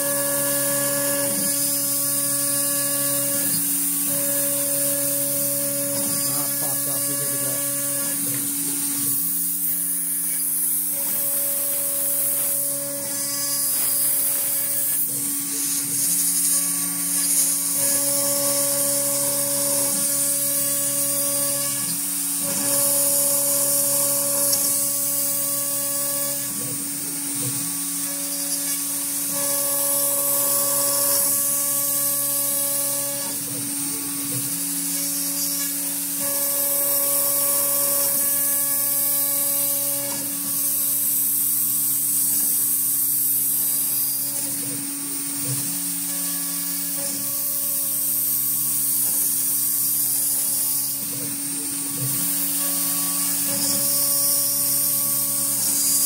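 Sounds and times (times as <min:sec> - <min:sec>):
router spindle hum and hiss: 0:00.0 - 0:56.0.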